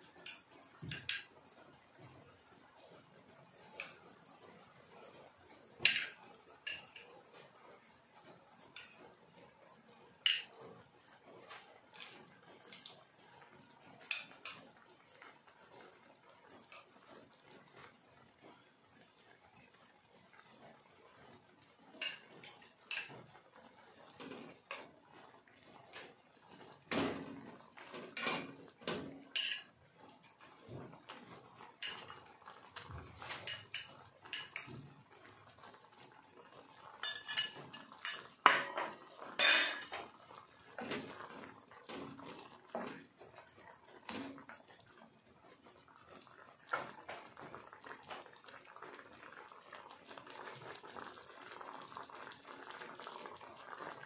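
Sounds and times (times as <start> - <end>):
metal utensils clinking on pots: 0.2 - 1.3, 5.8 - 7.2, 10.2 - 13.1, 21.9 - 23.3, 24.1 - 30.5, 31.6 - 34.9, 36.5 - 43.3.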